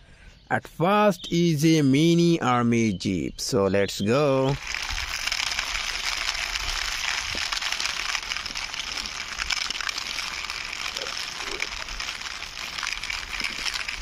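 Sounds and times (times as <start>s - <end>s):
toy wheels scraping over concrete: 4.2s - 14.0s.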